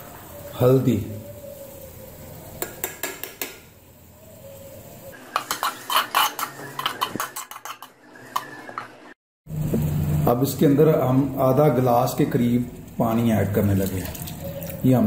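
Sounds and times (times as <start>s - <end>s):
turner scraping and clinking on pot: 5.3s - 9.0s.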